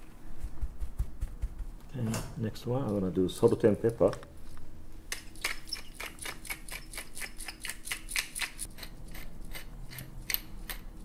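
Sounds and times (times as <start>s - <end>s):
pepper mill grinding: 5.1s - 10.8s.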